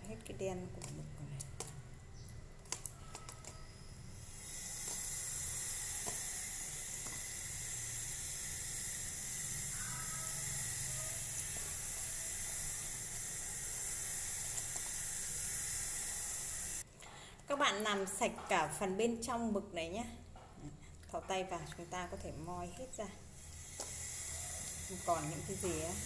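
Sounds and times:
steady high hiss: 4.1 - 16.8, 23.2 - 26.0.

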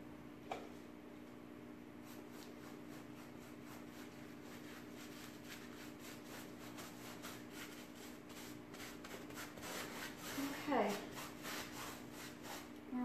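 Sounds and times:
paintbrush scrubbing fabric: 2.0 - 12.7.

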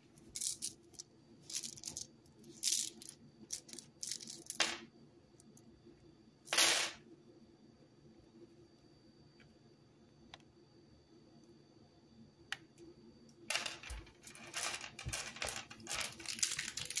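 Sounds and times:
gum tablets clattering on wooden table: 13.5 - 17.0.

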